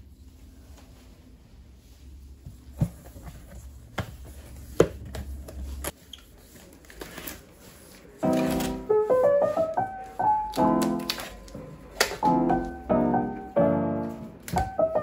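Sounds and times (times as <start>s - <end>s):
piano music: 8.2s - 15.0s
packing tape pulled off roll: 10.5s - 12.2s.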